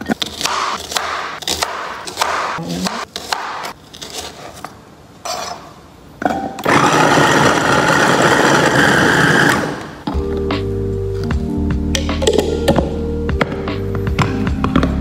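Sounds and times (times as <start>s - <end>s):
cleaver chopping on cutting board: 0.3s - 2.6s
electric food chopper running: 6.6s - 9.9s.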